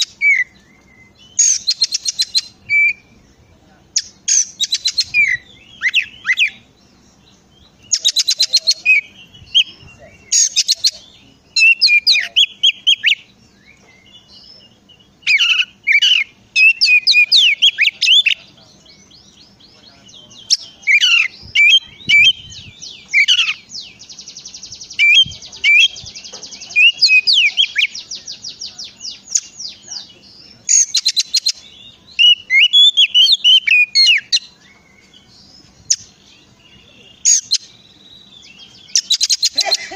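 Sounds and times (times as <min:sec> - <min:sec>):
songbird singing: 0:00.0 - 0:39.9.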